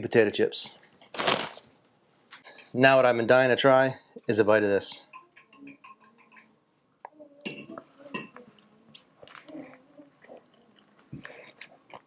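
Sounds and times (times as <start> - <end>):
person chewing a sandwich: 8.6 - 12.0.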